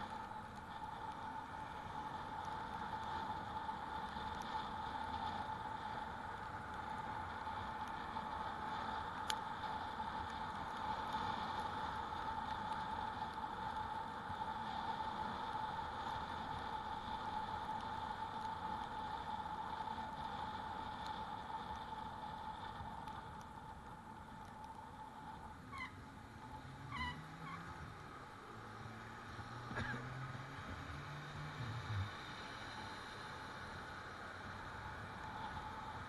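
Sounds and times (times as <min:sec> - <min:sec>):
passing engine hum: 0:25.1 - 0:36.0.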